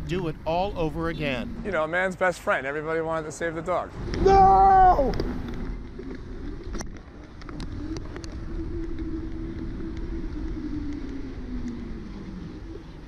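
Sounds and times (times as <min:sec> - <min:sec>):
wind and road rumble: 0:00.0 - 0:13.0
electric motor hum: 0:05.2 - 0:13.0.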